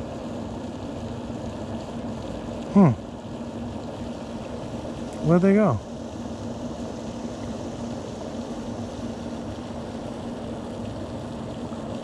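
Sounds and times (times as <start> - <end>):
constant low hum: 0.0 - 12.0
outdoor background noise: 0.0 - 12.0.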